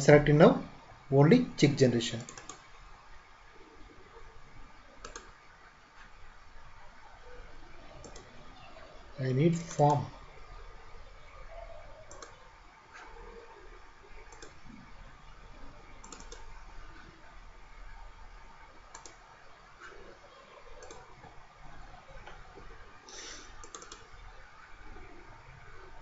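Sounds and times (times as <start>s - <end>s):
low steady hiss and hum: 0.0s - 26.0s
computer mouse clicks: 2.2s - 2.7s, 5.0s - 5.4s, 8.0s - 8.3s, 12.0s - 13.2s, 14.2s - 14.8s, 16.0s - 16.6s, 18.9s - 19.2s, 20.8s - 21.3s, 23.2s - 24.2s.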